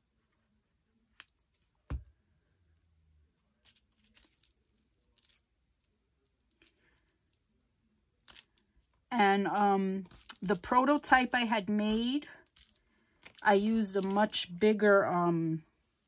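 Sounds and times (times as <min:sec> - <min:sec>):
paper rustling: 0:03.6 - 0:06.0, 0:10.0 - 0:10.6, 0:11.9 - 0:14.6.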